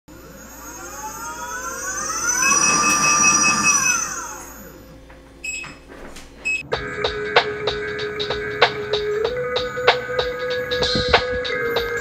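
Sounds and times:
electric motor whining: 0.1s - 6.0s
rapid alarm beeping: 0.1s - 6.6s.

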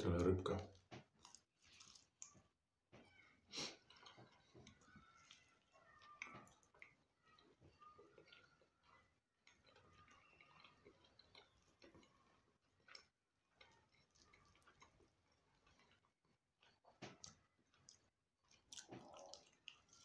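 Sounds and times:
faint chewing: 0.0s - 20.0s
mouth clicks and lip smacks: 17.1s - 20.0s.

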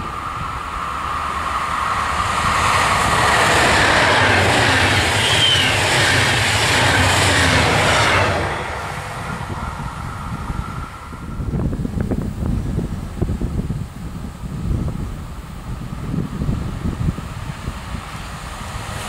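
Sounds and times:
high squeal: 0.0s - 11.6s
train wheels rumbling on rails: 0.0s - 19.0s.

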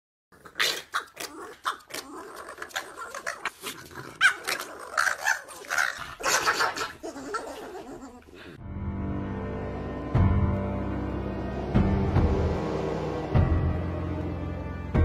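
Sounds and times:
small dogs growling and yapping: 0.3s - 8.6s.

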